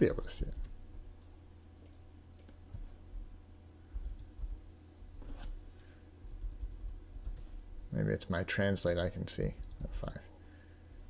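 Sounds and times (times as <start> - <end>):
low steady hum: 0.0 - 11.0
computer keyboard and mouse clicks: 4.0 - 4.6, 6.2 - 7.5, 9.6 - 10.2.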